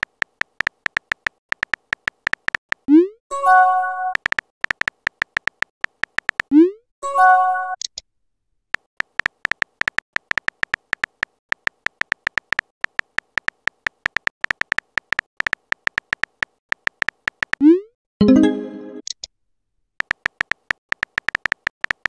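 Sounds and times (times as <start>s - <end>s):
synthetic key-tap clicks: 0.0s - 2.9s, 4.1s - 6.5s, 8.8s - 17.6s, 20.0s - 22.0s
message sent chime: 18.2s - 19.0s.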